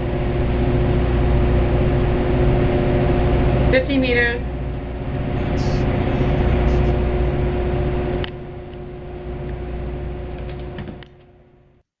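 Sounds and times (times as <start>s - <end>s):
ship engines humming: 5.0s - 8.7s
steady mid-pitched tone: 5.0s - 9.0s.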